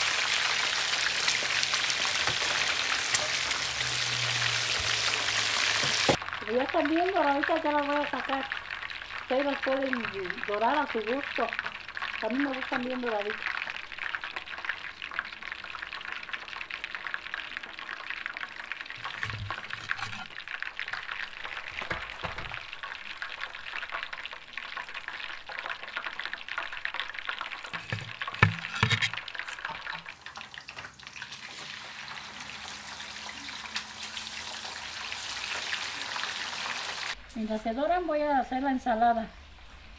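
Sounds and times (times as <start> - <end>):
fish sizzling in hot oil: 0.0 - 37.2
metal spoon clanking: 19.2 - 20.3, 27.8 - 29.9.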